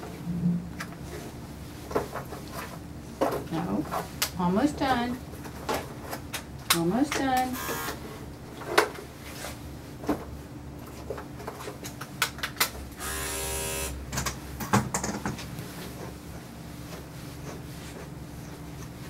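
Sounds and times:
electric clippers humming: 0:07.5 - 0:08.0, 0:13.0 - 0:14.0.

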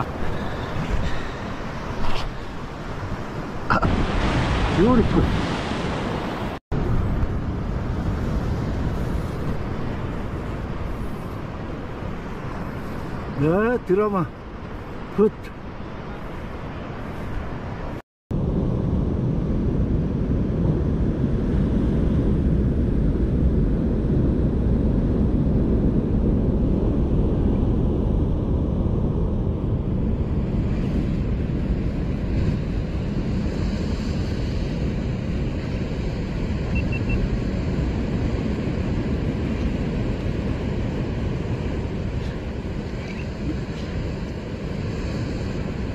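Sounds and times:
surf washing against rocks: 0:00.0 - 0:06.9
wind buffeting microphone: 0:00.0 - 0:13.6, 0:14.2 - 0:45.9.

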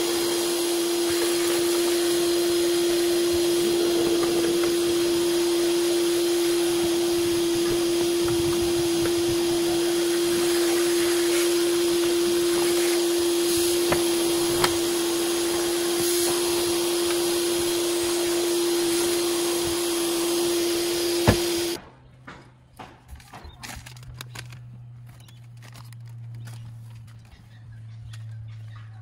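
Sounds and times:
vacuum cleaner running: 0:00.0 - 0:21.8.

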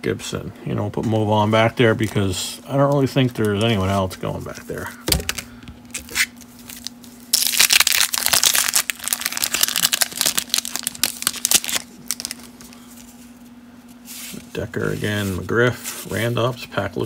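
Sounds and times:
faint steady hum: 0:00.0 - 0:17.0
wax paper wrapper tearing and crinkling: 0:05.2 - 0:13.1.

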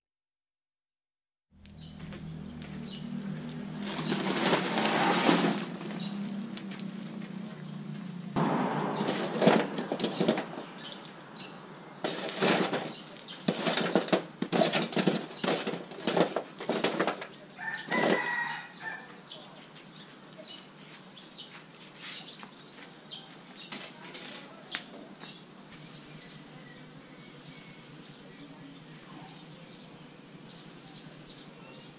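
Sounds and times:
rustling and flapping: 0:01.8 - 0:07.0, 0:08.4 - 0:11.2, 0:12.0 - 0:18.4.

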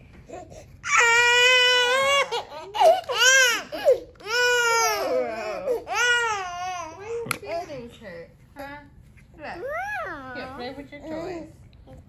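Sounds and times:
baby crying: 0:00.8 - 0:07.2.

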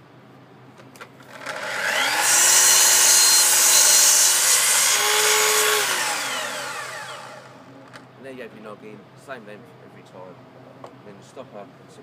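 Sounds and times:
saw blade cutting wood: 0:01.3 - 0:07.6
chop saw motor whine: 0:01.3 - 0:07.8.

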